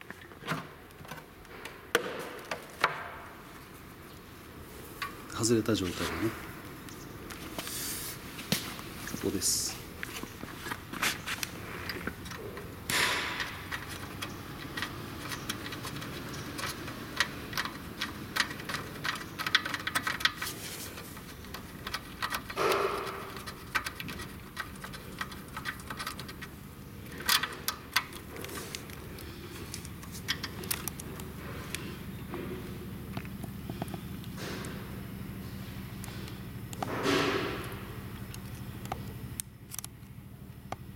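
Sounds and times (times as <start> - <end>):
light clicks and rustles of wiring: 8.4 - 34.8, 37.5 - 40.9.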